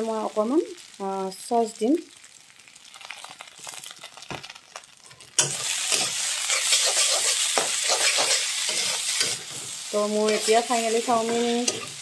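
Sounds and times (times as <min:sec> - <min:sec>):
food sizzling: 0:00.0 - 0:12.0
metal spatula scraping wok: 0:05.1 - 0:12.0.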